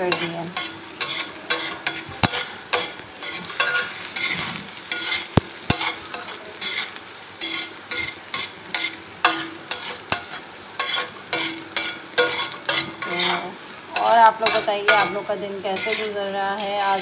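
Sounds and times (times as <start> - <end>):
onions sizzling in oil: 0.0 - 17.0
spatula scraping pan: 0.0 - 17.0.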